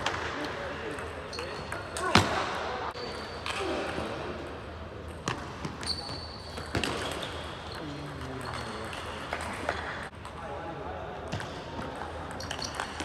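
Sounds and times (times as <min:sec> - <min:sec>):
table tennis balls bouncing: 0:00.0 - 0:02.3, 0:05.0 - 0:10.4, 0:11.3 - 0:13.0.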